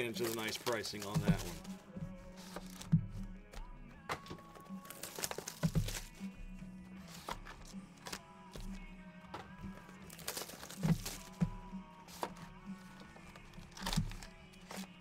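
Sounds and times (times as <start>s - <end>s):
background music: 0.0s - 15.0s
boxes knocking on table: 1.1s - 1.7s.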